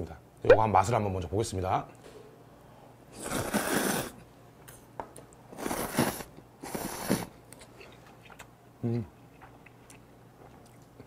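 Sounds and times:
man slurping noodles: 3.2s - 4.2s.

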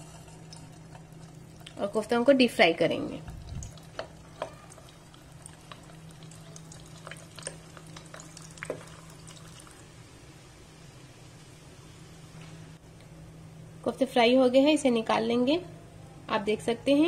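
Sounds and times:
meat deep-frying in oil: 0.0s - 10.1s
faint low hum: 0.0s - 17.0s.

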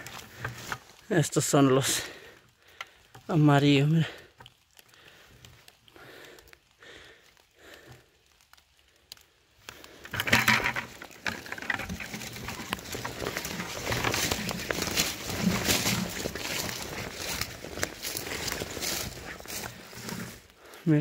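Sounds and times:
footsteps through rustling undergrowth: 0.0s - 4.1s, 9.7s - 21.0s.

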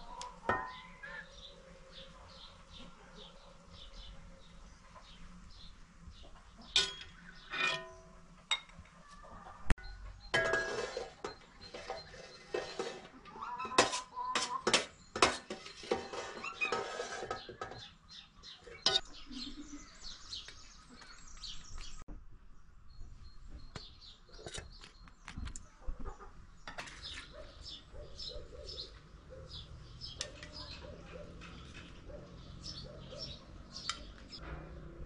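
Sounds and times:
spoon scraping rice from pot: 10.3s - 17.9s.

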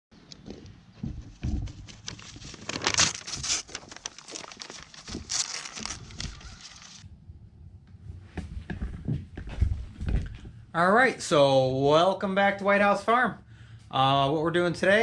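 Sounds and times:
paper crinkling and tearing: 1.6s - 7.0s.

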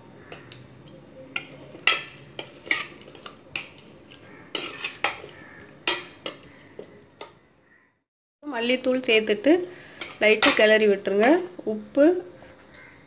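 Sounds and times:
metal spoon clinking on pot: 0.9s - 3.8s, 4.5s - 6.5s, 10.0s - 11.4s.

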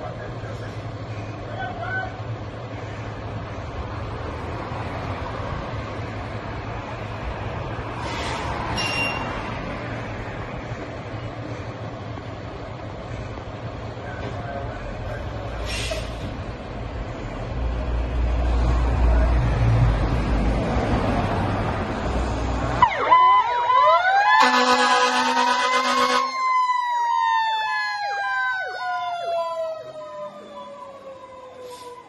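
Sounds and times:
diesel truck engine rumbling: 0.0s - 26.4s
air horn: 24.4s - 26.3s.

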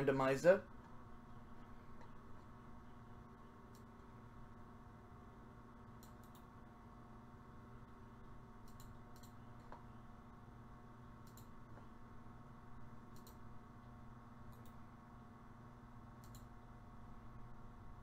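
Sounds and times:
low steady hum: 0.0s - 18.0s
computer mouse clicks: 3.7s - 4.1s, 6.0s - 6.5s, 8.6s - 9.9s, 11.2s - 11.9s, 13.1s - 13.5s, 14.5s - 14.8s, 16.2s - 16.6s.

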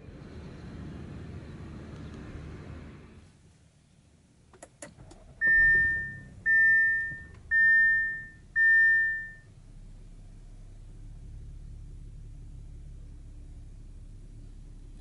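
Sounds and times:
seatbelt warning chime: 5.4s - 9.5s.

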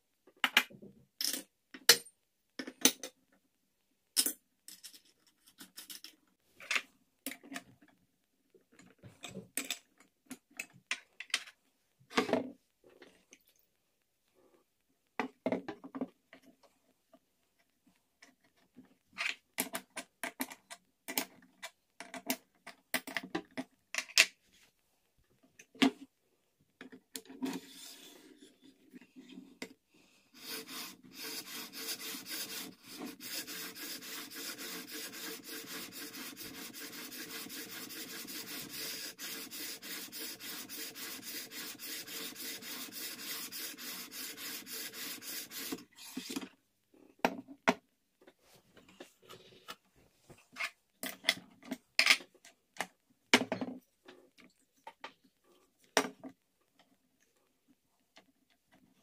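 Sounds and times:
sharpening stone rubbing on steel: 30.4s - 46.2s.

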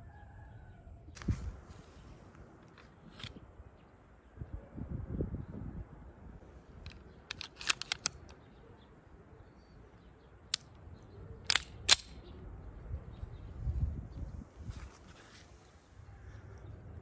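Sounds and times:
metallic clicks of pistol loading: 6.8s - 8.4s, 10.5s - 10.8s, 11.4s - 12.3s
pistol slide clacks: 6.9s - 8.4s, 11.4s - 12.2s.

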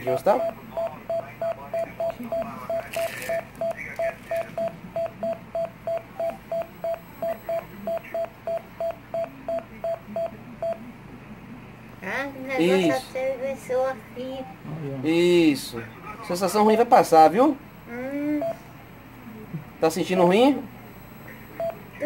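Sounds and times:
monitor heartbeat beeps: 0.0s - 10.8s, 21.0s - 22.0s.

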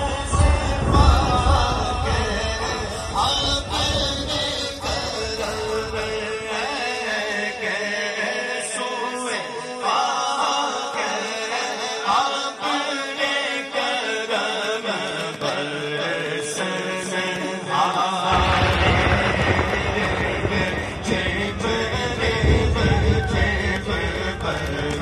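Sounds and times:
man chanting into a microphone: 0.0s - 25.0s.

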